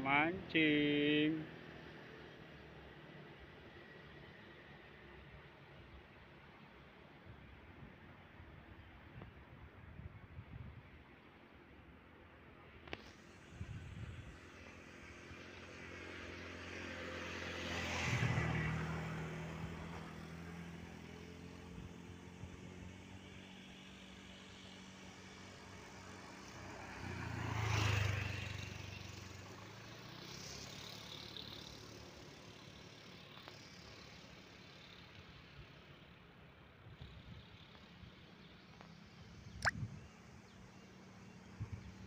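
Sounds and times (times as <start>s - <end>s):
vehicles passing: 0.0s - 7.1s, 12.1s - 42.0s
engine hum and tyre hiss: 0.0s - 42.0s.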